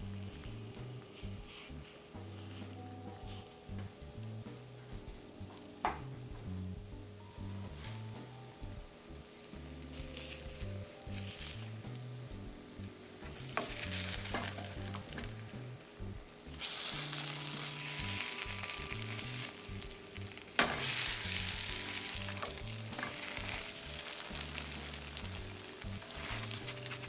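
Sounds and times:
food sizzling in a skillet: 0.0 - 27.0
spatula scraping and tapping pan: 13.2 - 15.6, 16.6 - 27.0.

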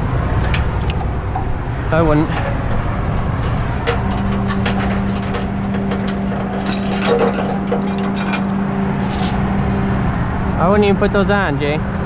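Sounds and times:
metal scraping: 0.0 - 9.9
hydraulics humming: 0.0 - 12.0
metal clicks: 0.4 - 1.6, 2.3 - 9.4.

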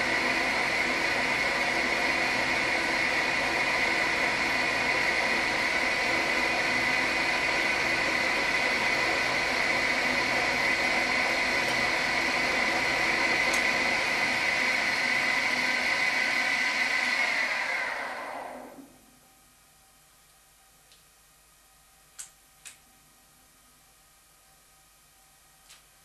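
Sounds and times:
milling machine humming and whining: 0.0 - 19.1.

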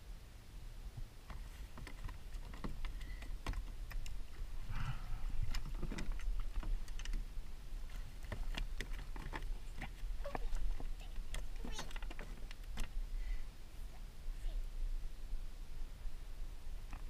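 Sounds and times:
steady low rumble: 0.0 - 17.0
light clicks and knocks on plastic kayak: 1.3 - 4.5, 5.4 - 13.0.

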